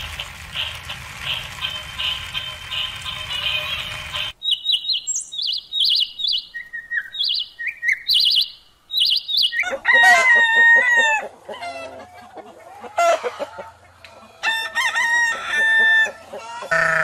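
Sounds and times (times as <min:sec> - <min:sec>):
bird chirping trills: 0:02.7 - 0:09.7
rooster crowing: 0:09.6 - 0:12.0, 0:14.4 - 0:17.0
chicken clucking: 0:09.6 - 0:17.0.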